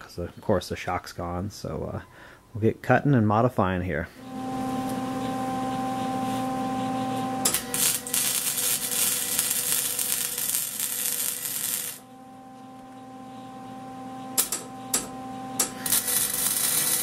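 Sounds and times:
electrical hum: 3.4s - 17.0s
arc welder crackling: 4.2s - 17.0s.

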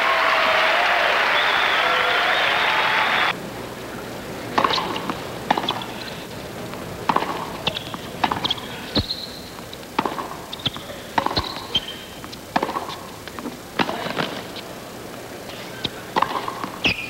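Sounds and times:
sneakers squeaking: 1.4s - 17.0s
tennis ball hitting racquets: 4.4s - 17.0s
ball bouncing on court: 4.5s - 6.2s, 7.0s - 14.6s, 15.8s - 17.0s.

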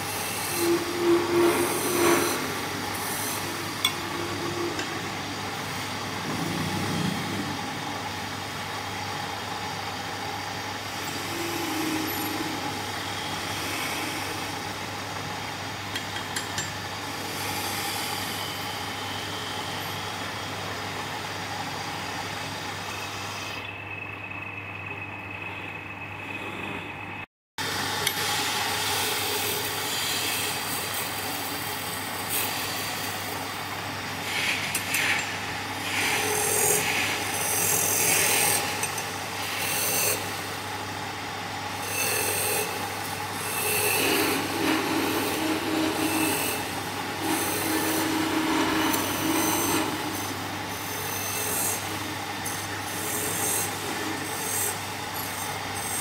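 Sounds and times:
wood lathe motor hum: 41.4s - 56.0s.

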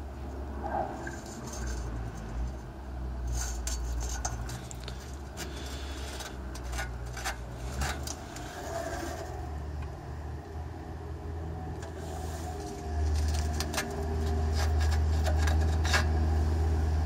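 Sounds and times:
car engine idling: 0.0s - 16.8s
exhaust pipe metallic rattles: 0.9s - 9.8s, 12.6s - 16.6s.

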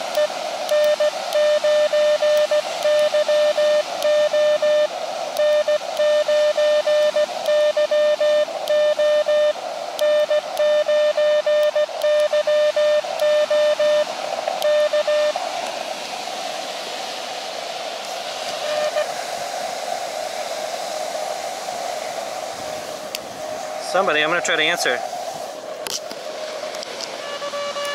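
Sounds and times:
radio band hiss: 0.0s - 27.9s
morse code beeps: 0.1s - 14.0s, 14.6s - 15.3s, 27.2s - 27.9s.

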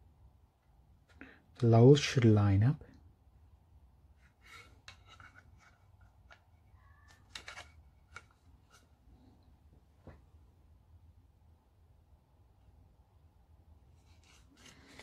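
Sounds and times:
light scrapes of parts: 4.2s - 6.4s, 14.0s - 15.0s.

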